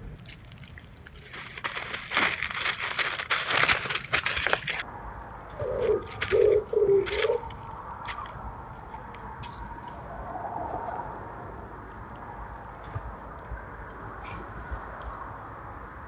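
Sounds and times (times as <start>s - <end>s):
loud crackling rustle: 0.0s - 4.9s, 6.0s - 10.1s
pigeon cooing: 5.5s - 7.6s.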